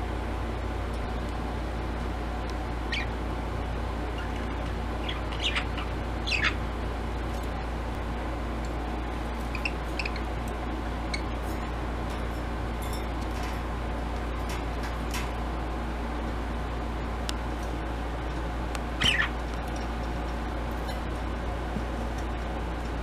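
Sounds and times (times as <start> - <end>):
low background hum: 0.0 - 23.0
budgerigars chirping: 2.9 - 3.2, 4.1 - 6.6, 9.4 - 10.3, 19.0 - 19.4.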